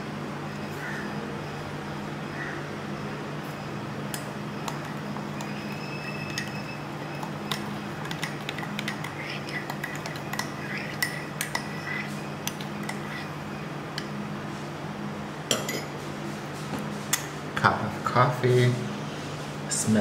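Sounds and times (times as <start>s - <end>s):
steady low hum: 0.0s - 20.0s
teaspoon clinking against ceramic mug: 5.4s - 13.0s.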